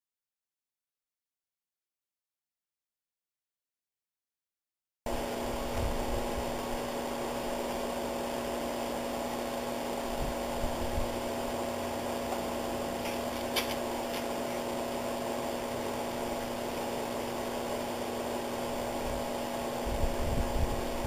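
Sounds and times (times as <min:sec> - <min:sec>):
steady electrical hum: 0:05.1 - 0:21.0.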